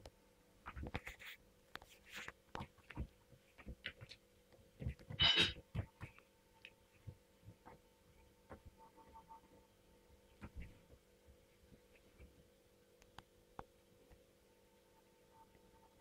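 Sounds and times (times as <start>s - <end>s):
faint steady hum: 0.0s - 16.0s
kitten paws thumping and scratching: 0.7s - 4.2s.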